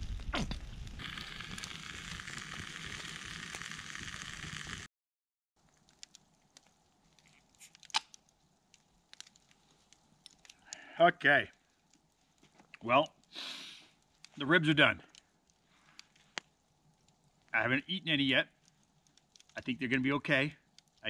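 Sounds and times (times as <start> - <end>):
ribs sizzling on a grate: 0.8 - 4.9.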